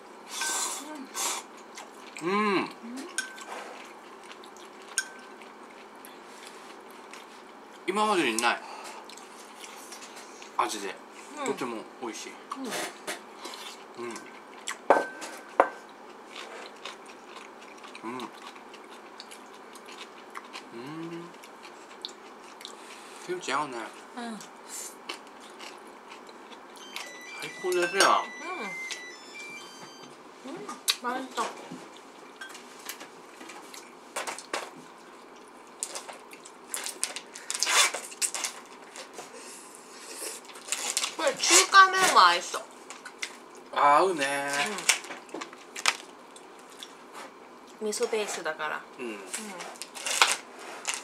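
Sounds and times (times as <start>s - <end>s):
soft chewing: 1.4s - 2.3s, 3.0s - 11.6s, 13.4s - 14.9s, 15.8s - 23.3s, 23.9s - 27.1s, 31.8s - 37.4s, 44.7s - 48.5s.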